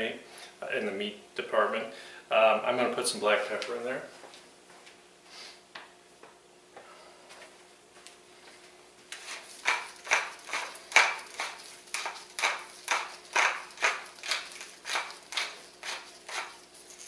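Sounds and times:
pepper mill grinding: 9.1 - 17.0.

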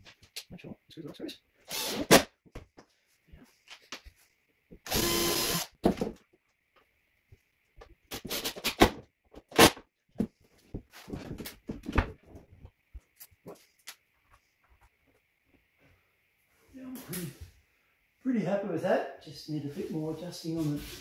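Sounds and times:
cordless drill driving screw: 4.9 - 5.7.

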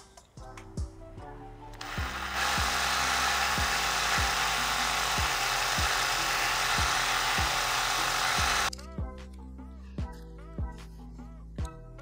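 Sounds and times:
cordless drill grinding into metal: 1.8 - 8.7.

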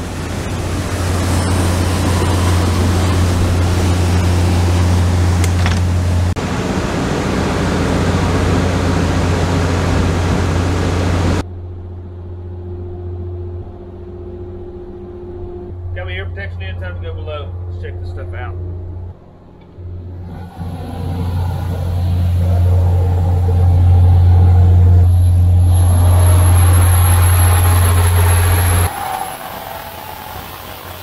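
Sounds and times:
rushing wind and water: 0.0 - 11.4, 20.1 - 31.0
boat engine drone: 0.0 - 31.0.

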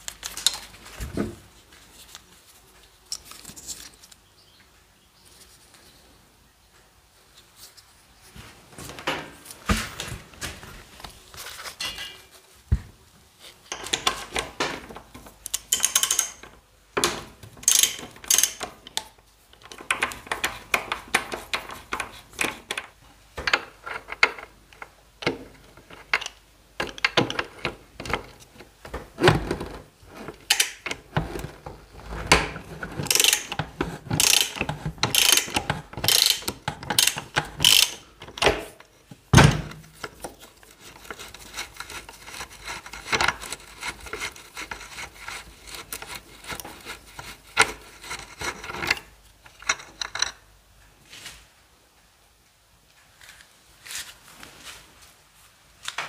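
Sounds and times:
ratchet wrench clicking: 17.7 - 18.6, 34.2 - 38.0.

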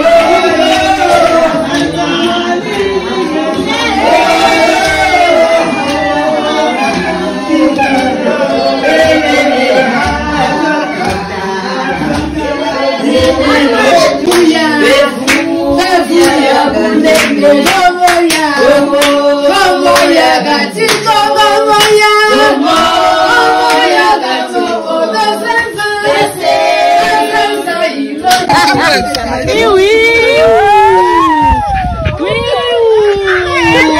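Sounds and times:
women singing together: 0.0 - 31.7
hand clapping: 1.6 - 14.6, 15.2 - 19.3, 19.9 - 22.8, 28.2 - 29.3.

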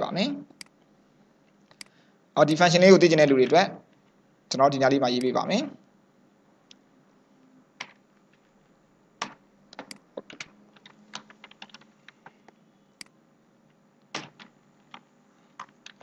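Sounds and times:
computer keyboard typing: 7.8 - 8.0, 9.2 - 12.6, 14.1 - 16.0.

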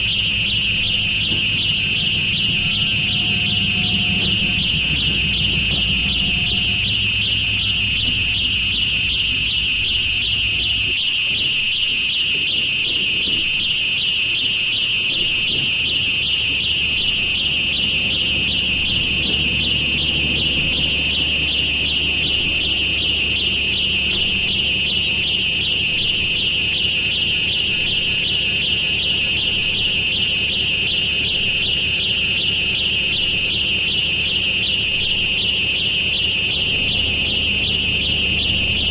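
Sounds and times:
shrill alarm-like whine: 0.0 - 38.9
low rumble: 0.8 - 10.8.

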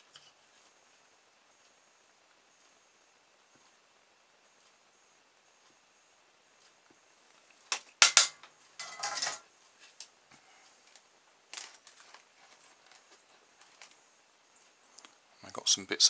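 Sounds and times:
small parts clicking and clattering: 7.7 - 9.4, 10.8 - 14.0.

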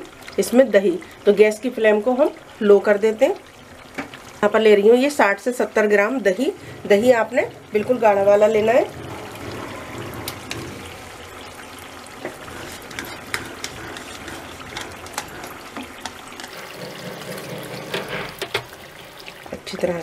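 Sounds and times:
gravy simmering hiss: 0.0 - 20.0
spatula scraping plastic tub: 16.5 - 18.6.

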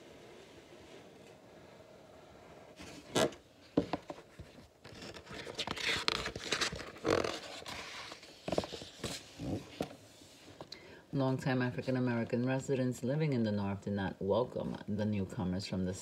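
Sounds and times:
book pages rustling and turning: 2.7 - 10.7.

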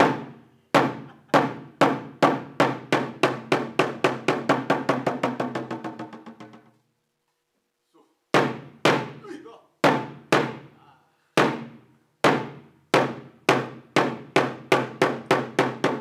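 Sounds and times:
drum strokes speeding into roll: 3.1 - 6.8.

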